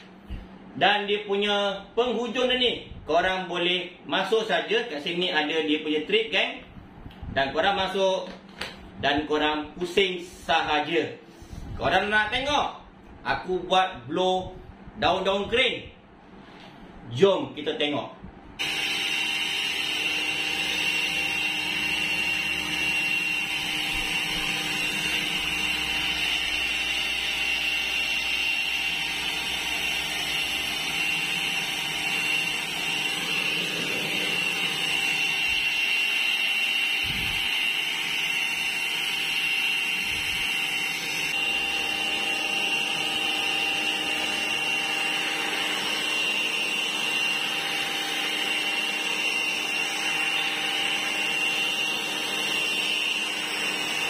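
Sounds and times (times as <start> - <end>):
leaf blower motor whine: 18.6 - 54.0.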